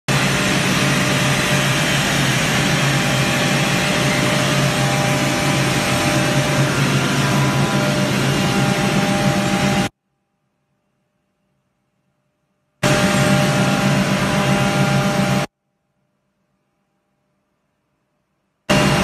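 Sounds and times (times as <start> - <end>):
air compressor humming: 0.1 - 9.9, 12.8 - 15.5, 18.7 - 19.0.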